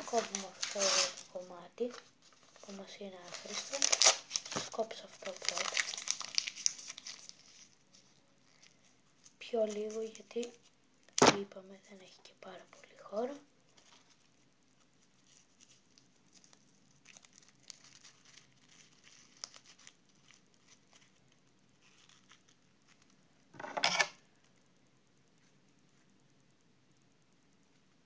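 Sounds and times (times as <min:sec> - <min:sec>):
scissors cutting paper: 0:00.0 - 0:01.3
paper and plastic bag rustling: 0:00.0 - 0:10.5.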